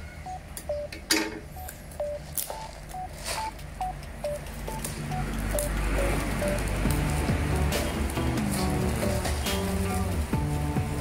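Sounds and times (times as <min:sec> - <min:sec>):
light plinking background music: 0:03.8 - 0:11.0
plastic wrapper crackling: 0:04.4 - 0:10.2.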